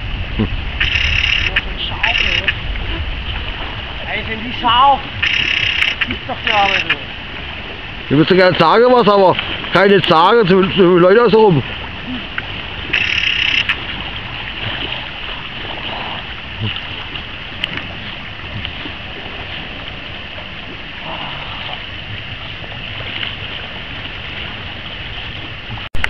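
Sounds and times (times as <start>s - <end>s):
shallow sea water washing: 0.0s - 26.0s
water splash: 0.0s - 26.0s.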